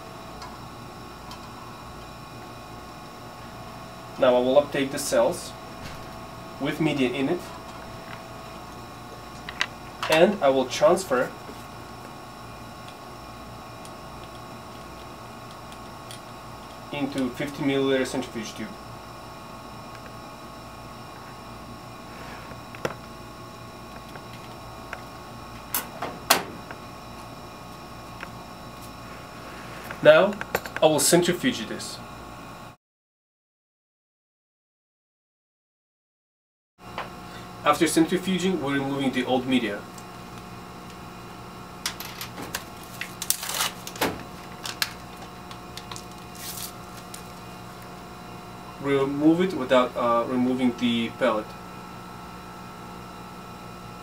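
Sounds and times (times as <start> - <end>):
cabinet fan humming: 0.0 - 32.7, 36.8 - 54.0
plastic wrapper crinkling: 42.6 - 47.4.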